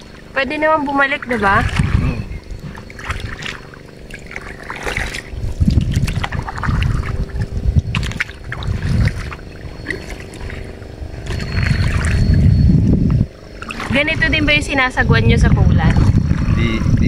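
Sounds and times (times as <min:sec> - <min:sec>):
kayak paddle splashing in water: 0:00.0 - 0:12.5, 0:13.4 - 0:14.4
low rumbling: 0:00.0 - 0:17.0
water dripping off paddle: 0:01.0 - 0:12.3.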